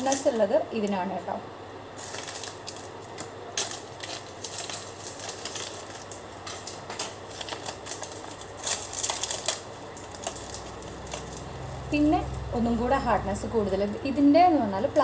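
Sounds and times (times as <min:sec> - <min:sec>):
plastic wrappers crinkling: 0:00.0 - 0:00.6, 0:02.0 - 0:12.4.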